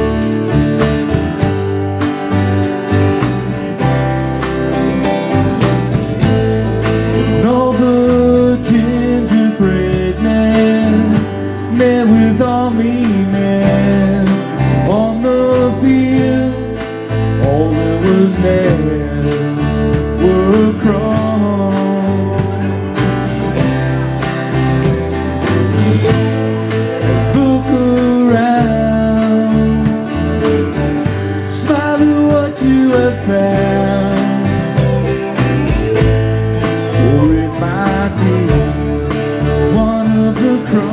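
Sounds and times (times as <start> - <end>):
drum kit: 0.0 - 40.9
electric guitar: 0.0 - 40.9
strummed acoustic guitar: 0.0 - 40.9
man singing: 7.2 - 23.0, 27.0 - 35.4, 36.6 - 40.9.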